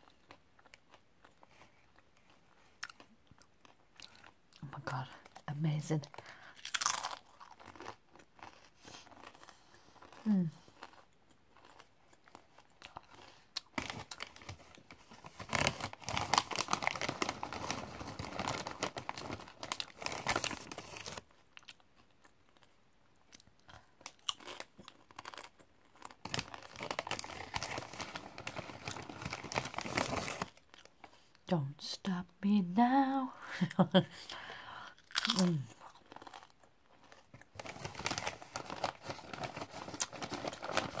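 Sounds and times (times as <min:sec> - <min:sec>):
crunchy chips being chewed: 0:00.0 - 0:04.7, 0:06.4 - 0:14.5, 0:15.6 - 0:31.2, 0:35.0 - 0:41.0
snack bag crinkling: 0:06.1 - 0:31.3, 0:35.0 - 0:41.0.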